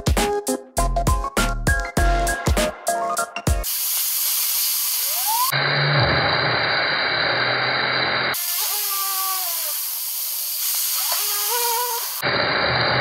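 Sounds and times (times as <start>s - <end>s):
waterjet stream hissing: 3.6s - 13.0s
spinning wheels whining: 5.0s - 13.0s.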